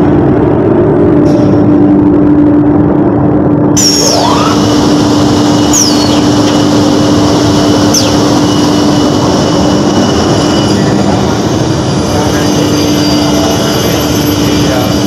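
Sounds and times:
woodworking machine running: 0:03.0 - 0:15.0
high whistles falling in pitch: 0:05.7 - 0:06.4, 0:07.8 - 0:08.3.

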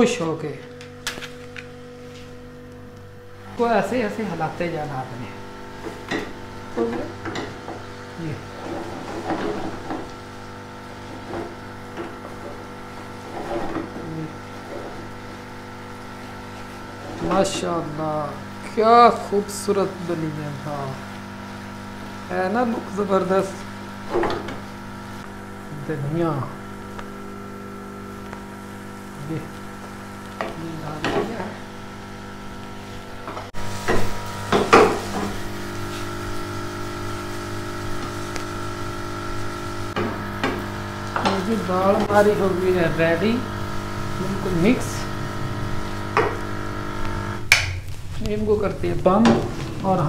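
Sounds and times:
steady hum: 0:00.0 - 0:50.0
wooden spoon stirring in a pan: 0:05.7 - 0:17.6
food sizzling in a frying pan: 0:26.6 - 0:48.0.

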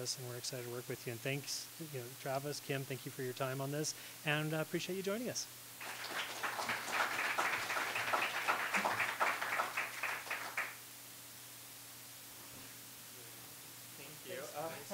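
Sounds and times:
audience applauding: 0:05.8 - 0:10.8.

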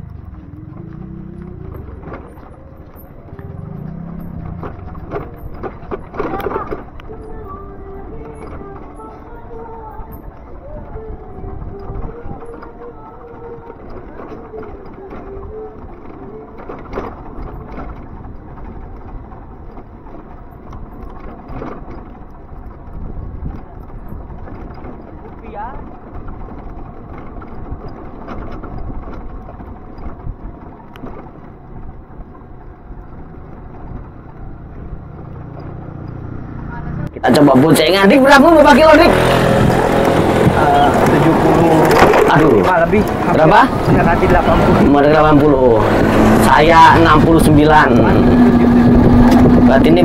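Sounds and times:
knocks from wheels over bumps: 0:00.0 - 0:37.0, 0:37.7 - 0:50.0
electric motorcycle hum: 0:00.0 - 0:50.0
tyre and road rumble: 0:00.0 - 0:50.0
wind on microphone: 0:06.4 - 0:13.8, 0:22.7 - 0:25.3, 0:39.1 - 0:50.0.

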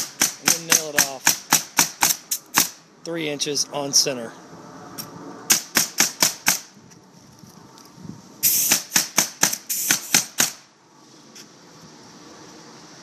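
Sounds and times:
pneumatic nailer firing: 0:00.0 - 0:02.8, 0:05.5 - 0:06.7, 0:08.4 - 0:10.6
air hiss: 0:01.5 - 0:02.8, 0:08.4 - 0:10.6.

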